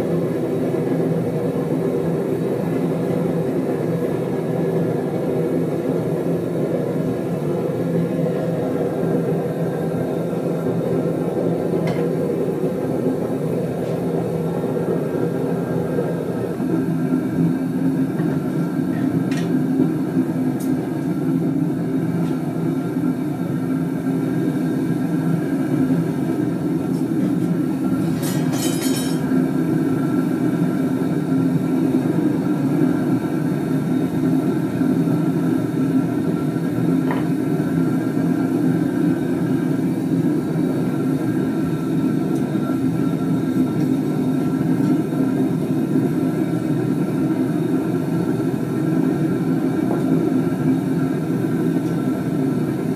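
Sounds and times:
gas burner roaring: 0:00.0 - 0:52.9.

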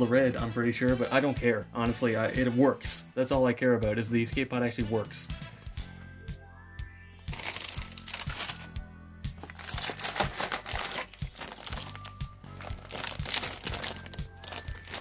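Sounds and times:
background music: 0:00.0 - 0:15.0
plastic bags crinkling: 0:07.3 - 0:08.7, 0:09.4 - 0:15.0.

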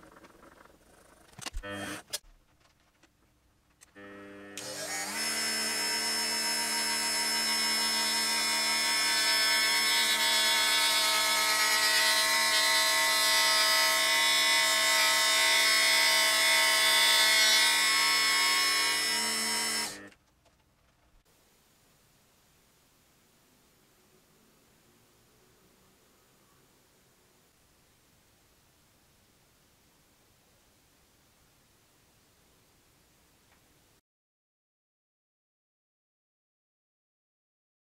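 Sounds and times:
cut-off disc grinding steel: 0:04.5 - 0:20.1.

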